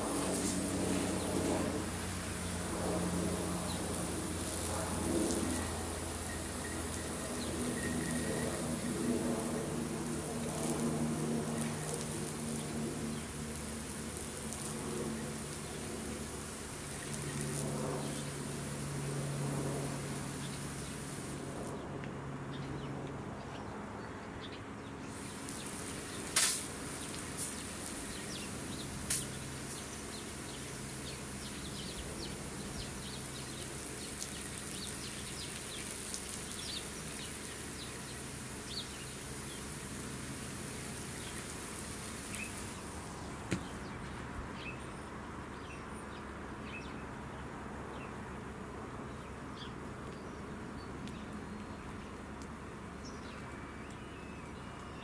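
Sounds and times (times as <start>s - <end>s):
steady hiss of spray: 0.0s - 21.7s, 25.0s - 44.0s.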